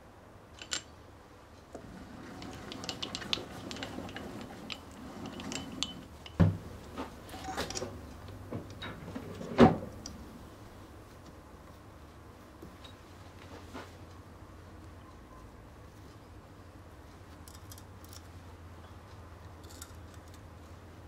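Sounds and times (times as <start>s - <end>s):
metal tools clicking and clinking: 0.6s - 1.0s, 2.2s - 10.2s, 17.4s - 18.3s, 19.6s - 20.5s.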